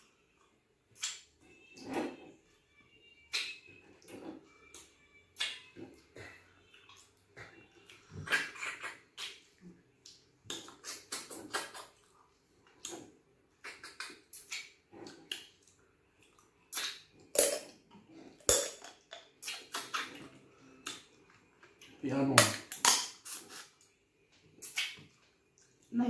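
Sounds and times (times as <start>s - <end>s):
wet chewing and lip smacking: 5.4s - 17.3s, 19.4s - 22.0s, 24.6s - 25.9s.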